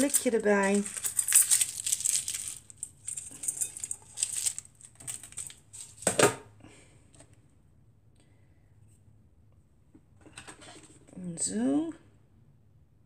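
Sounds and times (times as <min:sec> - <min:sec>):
beads rustling and clicking on tin: 0:00.0 - 0:06.2.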